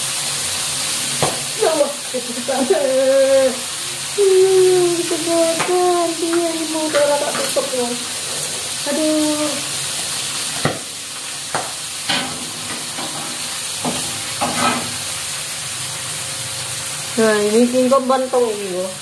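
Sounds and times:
hot oil sizzling in a wok: 0.0s - 19.0s
metal spatula scraping a pan: 12.0s - 15.1s.

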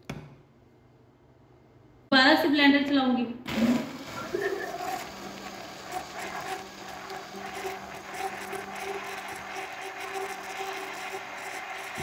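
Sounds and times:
blender running: 3.5s - 12.0s.

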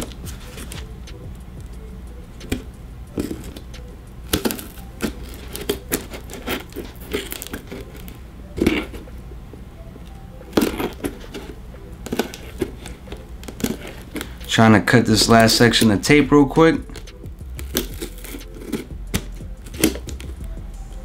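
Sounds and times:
scissors cutting packing tape: 2.4s - 9.0s, 10.5s - 14.5s, 16.8s - 20.4s.

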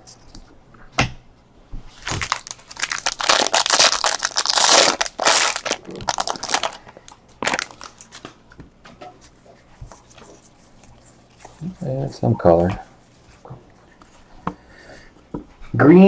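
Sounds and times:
foil wrapper crinkling and tearing: 2.0s - 8.4s.

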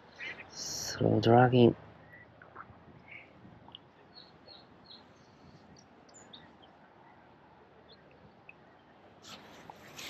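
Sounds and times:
faint high bird chirps: 3.0s - 7.2s.

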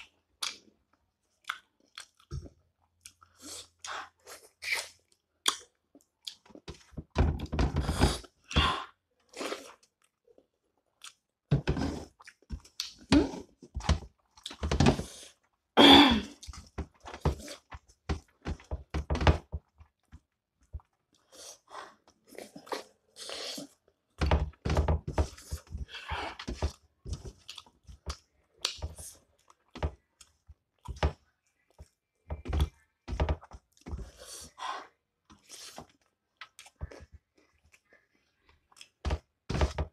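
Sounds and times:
chewing and mouth smacks: 1.4s - 3.4s, 4.6s - 6.7s, 9.2s - 11.4s, 27.4s - 28.8s.

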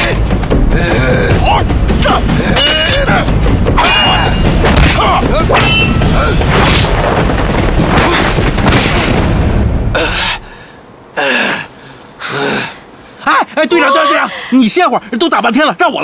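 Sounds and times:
dramatic film score: 0.0s - 10.9s
heavy booms: 4.4s - 10.5s.

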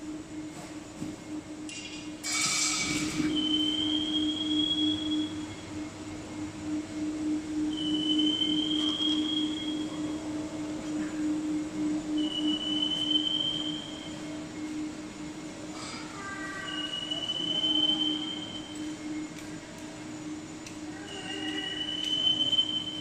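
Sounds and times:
high squeal: 2.2s - 5.6s, 7.6s - 10.2s, 15.8s - 19.0s.

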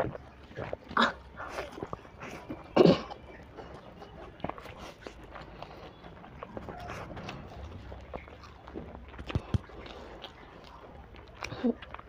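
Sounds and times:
wet chewing and mouth smacking: 0.0s - 12.0s.

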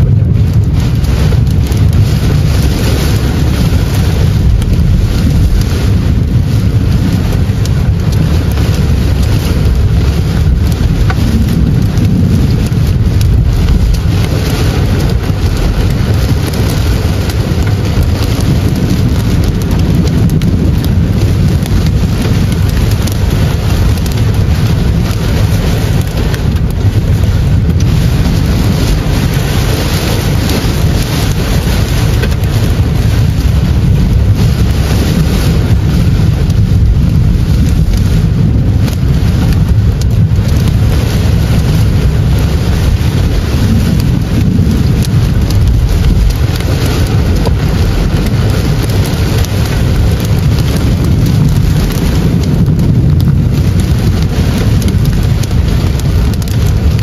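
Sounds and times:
heavy rain on car roof: 0.0s - 57.0s.

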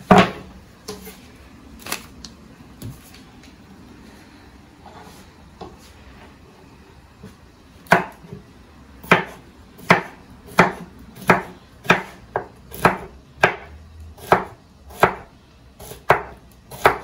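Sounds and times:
knife chopping on cutting board: 0.1s - 1.1s, 7.9s - 8.4s, 9.0s - 17.0s.

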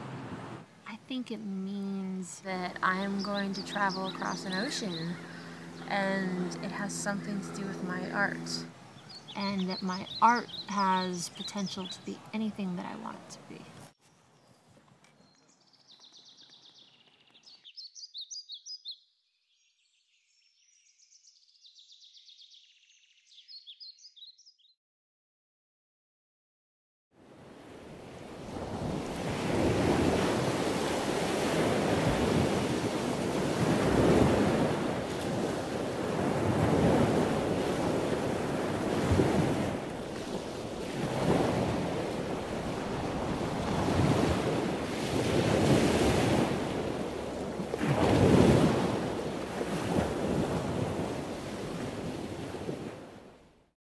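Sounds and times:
surf breaking on rocky shore: 28.0s - 53.1s.

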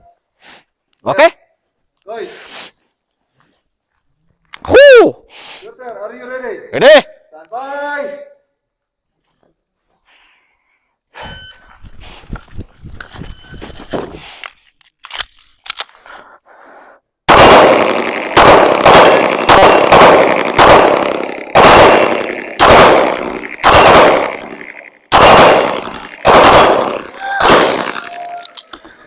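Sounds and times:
handgun shots echoing: 17.3s - 28.8s.

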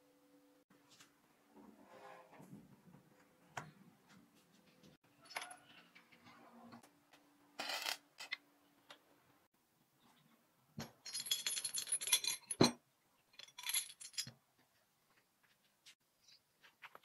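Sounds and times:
metallic chain clinks: 11.0s - 14.3s.

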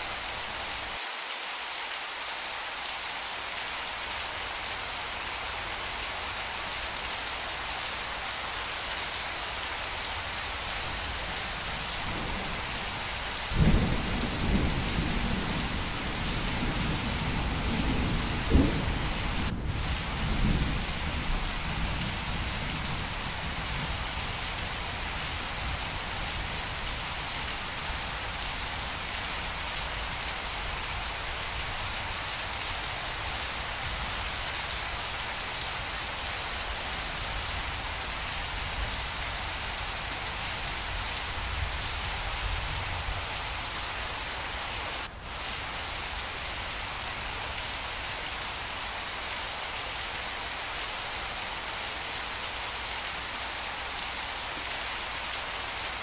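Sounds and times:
rain falling on leaves: 0.0s - 56.0s.

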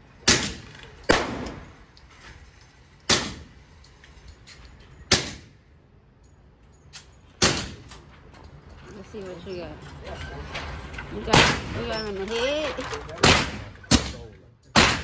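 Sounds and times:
gunshots with echo: 14.8s - 15.0s.

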